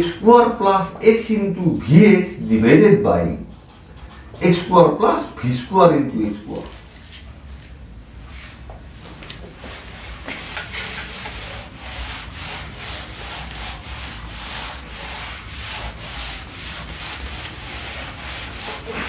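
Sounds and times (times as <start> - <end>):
eraser scrubbing a whiteboard: 3.2 - 5.4, 6.0 - 8.7, 9.3 - 19.0.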